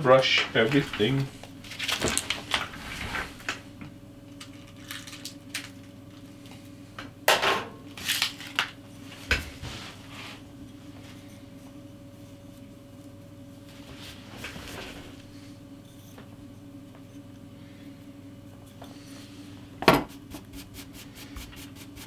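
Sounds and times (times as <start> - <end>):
faint electrical hum: 0.0 - 22.0
scraping rustle: 0.5 - 3.5.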